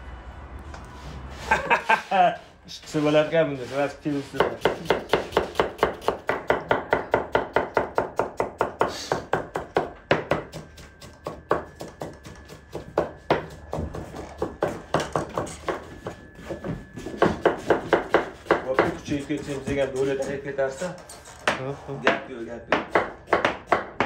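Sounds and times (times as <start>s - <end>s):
knife chopping on cutting board: 4.3s - 16.2s, 17.2s - 19.0s, 21.5s - 24.0s.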